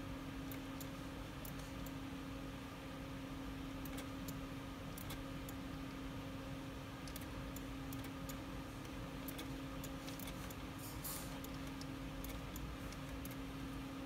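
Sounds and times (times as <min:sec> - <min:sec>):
steady low hum: 0:00.0 - 0:14.0
computer mouse clicking: 0:03.8 - 0:04.4, 0:05.0 - 0:05.6, 0:07.0 - 0:10.7, 0:11.3 - 0:13.4.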